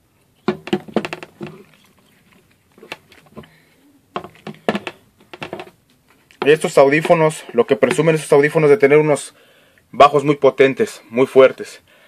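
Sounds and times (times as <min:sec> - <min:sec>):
headphones plastic knocks and clicks: 0:00.4 - 0:08.3.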